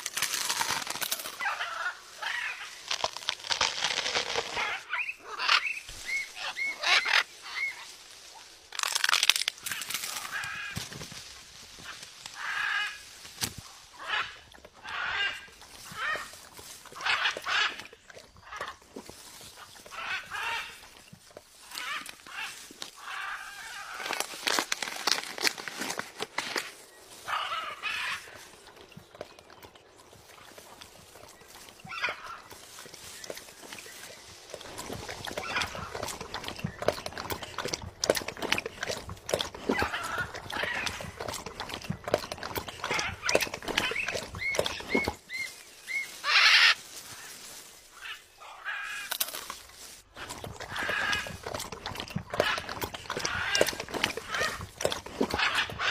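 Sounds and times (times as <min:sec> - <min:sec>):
macaw harsh rasping calls: 0:45.3 - 0:46.8
parrot screeching: 0:45.3 - 0:46.8.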